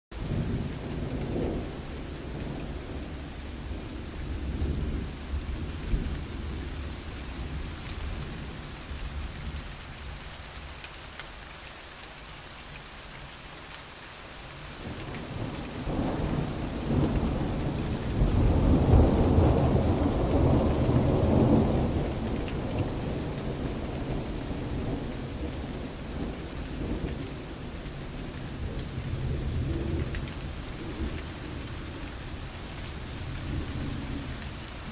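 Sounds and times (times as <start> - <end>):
thunder rumbling: 0.2 - 8.5, 14.8 - 34.9.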